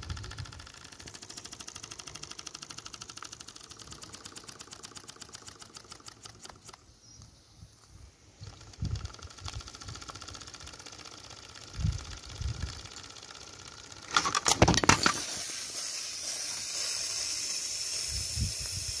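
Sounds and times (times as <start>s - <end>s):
loud rattling burst: 0.0s - 6.7s, 8.5s - 19.0s
steam hissing: 15.0s - 19.0s
steam engine exhaust beats: 15.2s - 19.0s.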